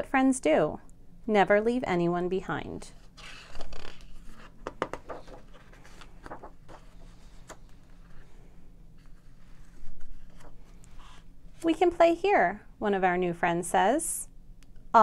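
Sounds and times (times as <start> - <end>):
book pages turning: 3.0 - 8.3, 9.0 - 11.7.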